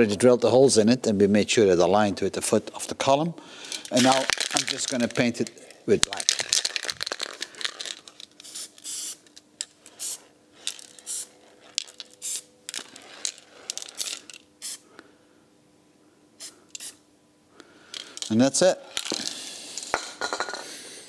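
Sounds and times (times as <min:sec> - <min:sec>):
spray paint can hissing: 0:08.4 - 0:09.3, 0:09.9 - 0:14.8.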